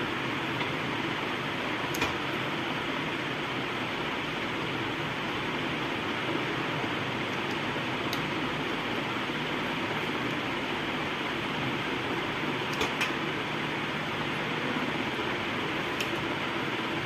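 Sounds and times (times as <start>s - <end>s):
fan-like background hiss: 0.0s - 17.0s.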